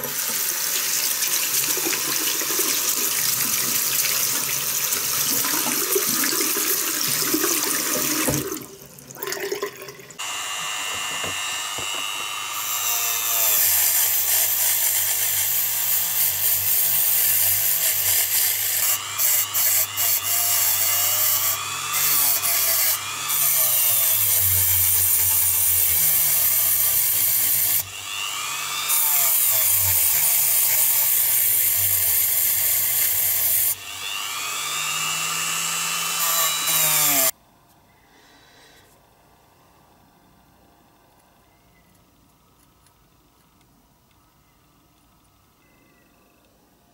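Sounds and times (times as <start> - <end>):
tap running into sink: 7.0 - 8.7
rotary tool grinding metal: 10.2 - 37.3.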